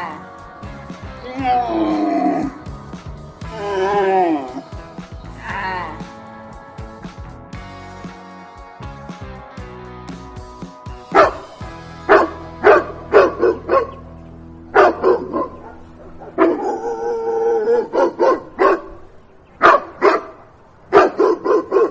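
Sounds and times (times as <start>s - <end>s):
background music: 0.0s - 18.6s
puppy barking and yipping: 11.1s - 11.5s, 12.1s - 14.0s, 14.7s - 19.0s, 19.6s - 21.9s.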